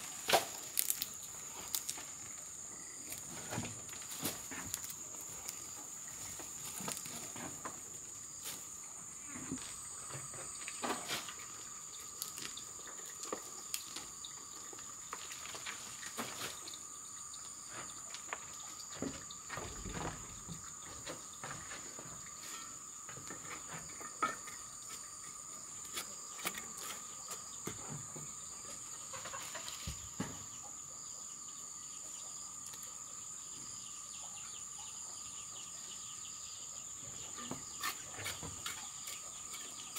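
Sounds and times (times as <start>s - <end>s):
hands rustling dry vines and soil: 0.0s - 7.6s
insects droning: 0.0s - 39.9s.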